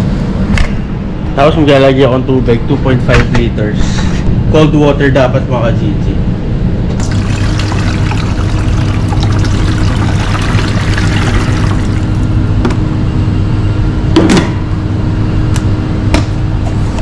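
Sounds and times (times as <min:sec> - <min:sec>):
water poured from a jug: 0:07.0 - 0:12.6.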